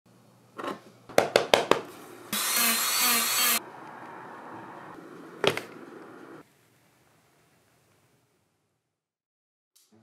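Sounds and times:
small power tool running: 0:02.3 - 0:03.6.

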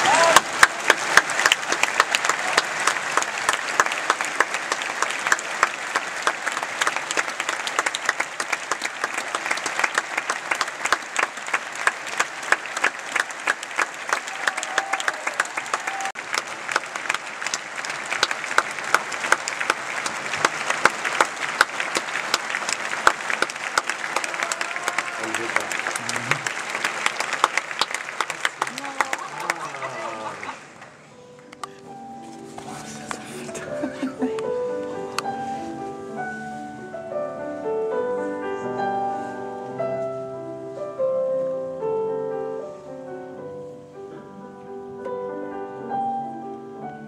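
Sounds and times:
audience applauding: 0:00.0 - 0:31.0.

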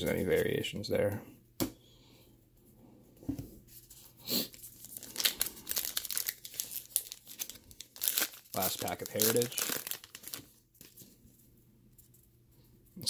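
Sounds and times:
wrapper crinkling and tearing: 0:04.4 - 0:11.0.

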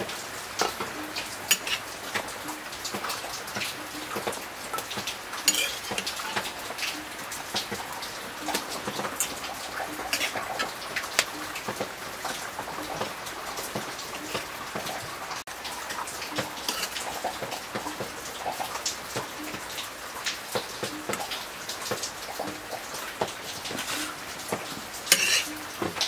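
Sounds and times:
meat sizzling in hot fat: 0:05.0 - 0:06.5, 0:16.6 - 0:17.0, 0:23.7 - 0:26.0.

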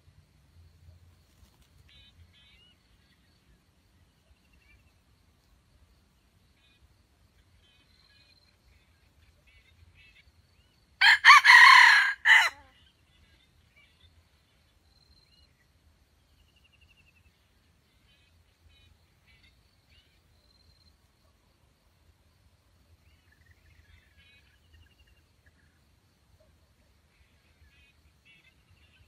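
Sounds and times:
rooster crowing: 0:11.0 - 0:12.7
faint bird chirps: 0:12.6 - 0:29.0.

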